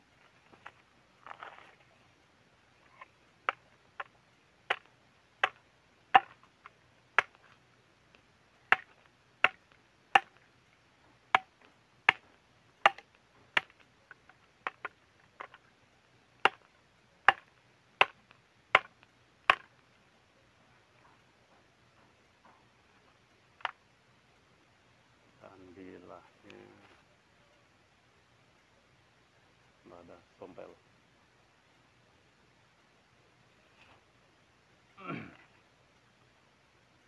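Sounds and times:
machete chopping into bone: 12.8s - 13.0s.

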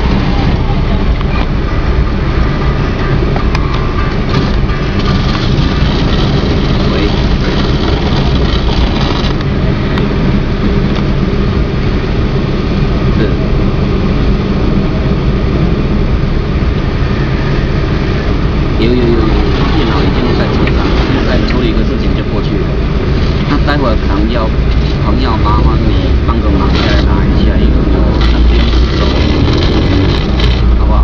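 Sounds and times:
vehicle engine idling: 0.0s - 31.0s.

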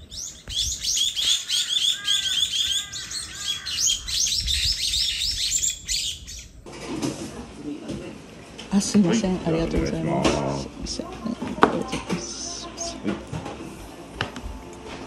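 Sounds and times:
lower whistled bird notes: 0.0s - 6.5s
small birds chirping chorus: 0.0s - 6.6s.

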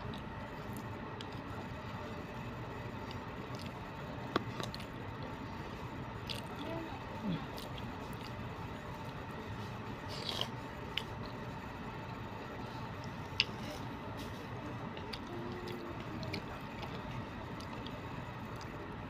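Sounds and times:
faint hum: 0.0s - 19.0s
person chewing food: 2.9s - 6.7s, 7.4s - 18.8s.

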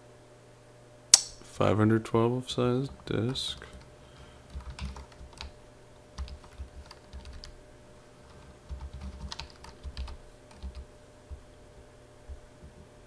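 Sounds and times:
keyboard typing: 2.9s - 5.6s, 6.2s - 7.6s, 8.2s - 10.9s.

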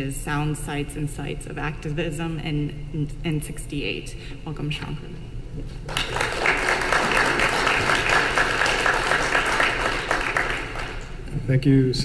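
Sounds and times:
audience applauding: 5.9s - 11.2s.

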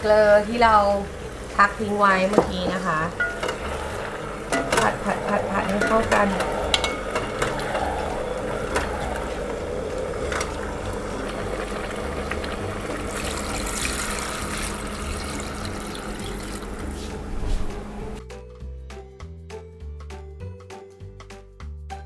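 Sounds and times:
water pouring onto chicken: 11.3s - 16.8s.

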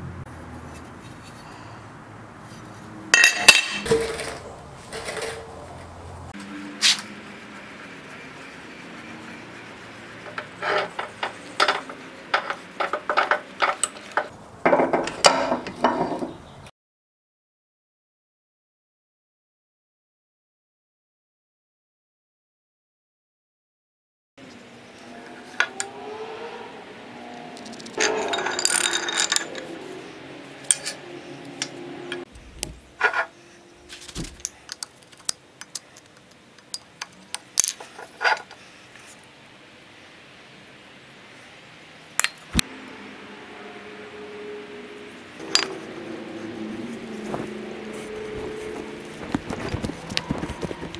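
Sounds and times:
metal tool scraping cast iron: 2.5s - 5.6s, 8.1s - 14.3s, 27.6s - 34.8s, 45.4s - 49.8s
metal parts clinking and knocking: 3.2s - 5.5s, 10.3s - 16.3s, 27.6s - 29.8s, 30.6s - 31.0s, 34.0s - 38.5s.

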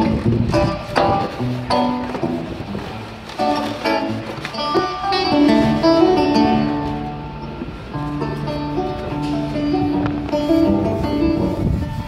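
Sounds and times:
amplified plucked guitar notes: 0.0s - 12.0s.

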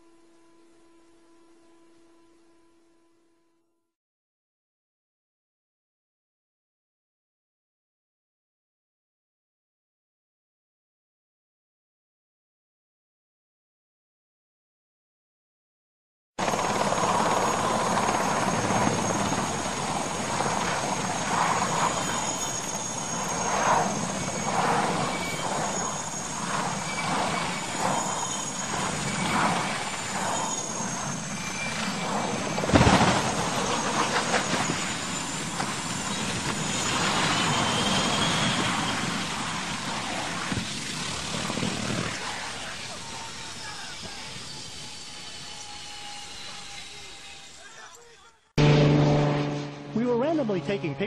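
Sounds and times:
high steady whine: 0.0s - 3.7s, 48.6s - 51.0s
helicopter turbine and rotor: 16.4s - 47.8s, 49.9s - 51.0s
loud crash impact: 48.6s - 50.7s.

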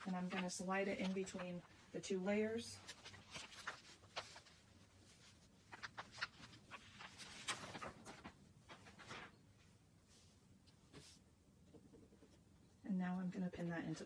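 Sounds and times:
paper and fabric rustling: 0.0s - 11.2s.

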